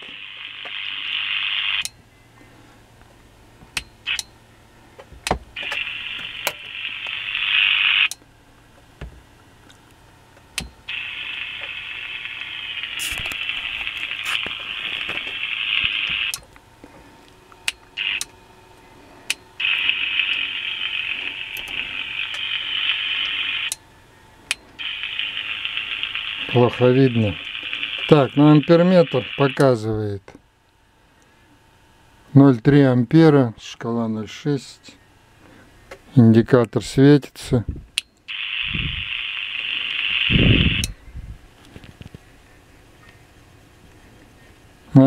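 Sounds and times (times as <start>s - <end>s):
radio speaker hiss: 0.0s - 1.9s, 5.6s - 8.1s, 10.9s - 16.4s, 18.0s - 18.3s, 18.9s - 23.8s, 24.7s - 30.4s, 32.3s - 41.0s
sharp clicks: 17.6s - 18.4s.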